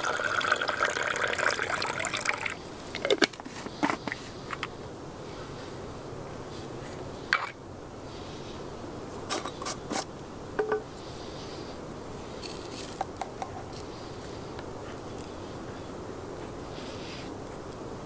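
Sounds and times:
spoon scraping coffee grounds: 12.3 - 14.0.

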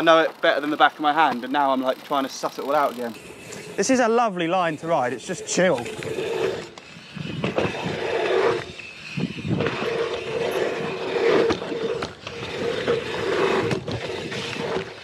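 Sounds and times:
bike tyres scraping on dirt: 0.0 - 15.0
wind rushing past camera: 5.1 - 15.0.

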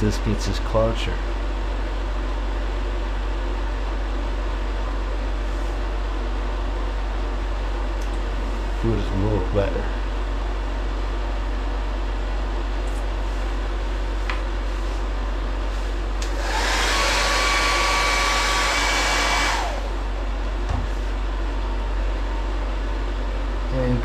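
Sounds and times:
low electrical hum: 0.0 - 24.0
hair dryer blowing: 16.2 - 20.1.

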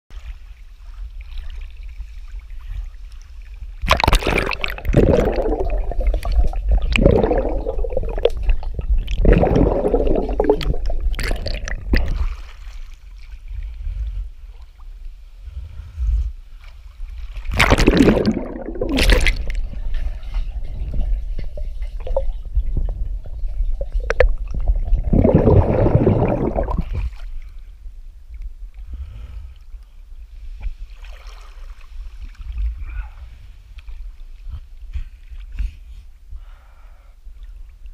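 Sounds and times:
water sloshing and gurgling: 0.1 - 35.9
steady low rumble: 2.8 - 30.6.

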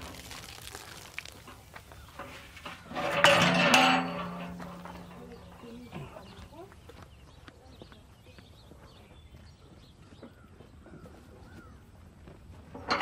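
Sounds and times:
birds chirping: 4.2 - 11.9.

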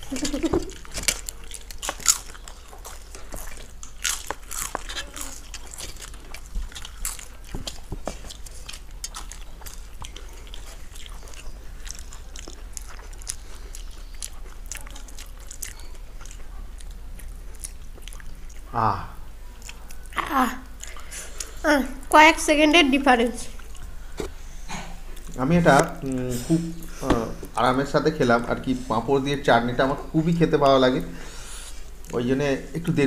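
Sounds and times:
crisp wafer crunching: 0.0 - 18.6.

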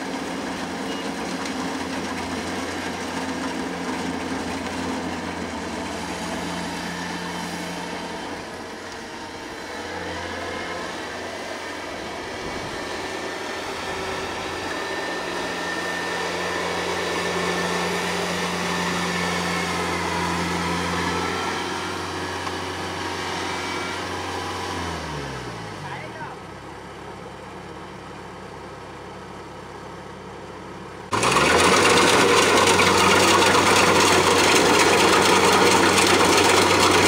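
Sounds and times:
combine harvester engine running: 0.0 - 37.0.

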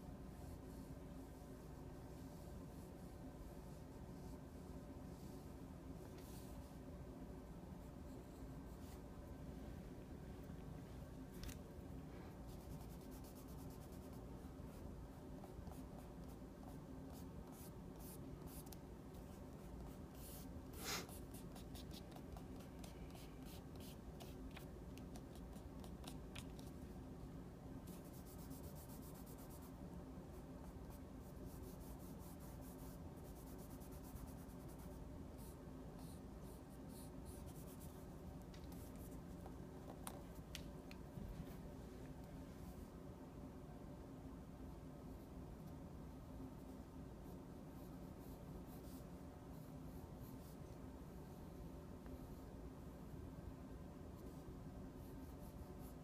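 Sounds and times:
faint steady hum: 0.0 - 56.0
pencil scratching on paper: 12.5 - 26.6, 27.8 - 38.0.

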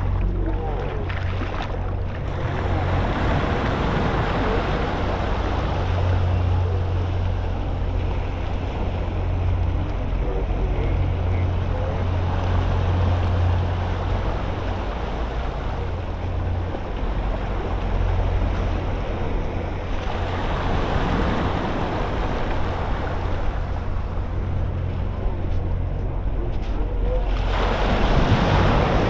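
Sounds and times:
low rumble: 0.0 - 29.0
ocean surf washing in: 0.0 - 29.0.

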